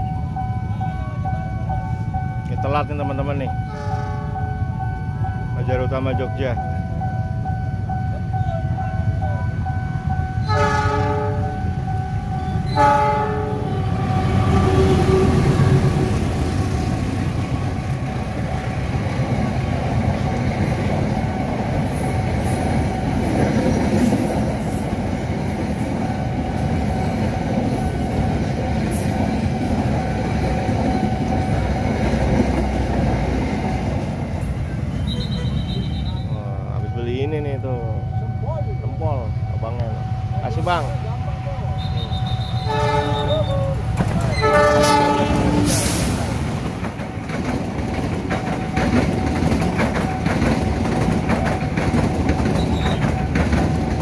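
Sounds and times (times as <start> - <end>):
train rumble: 0.0 - 54.0
locomotive horn blasts: 3.6 - 4.4, 10.4 - 11.6, 12.4 - 15.8, 35.0 - 37.0, 41.7 - 43.7, 44.3 - 46.0
wheel clatter on rails: 46.3 - 54.0.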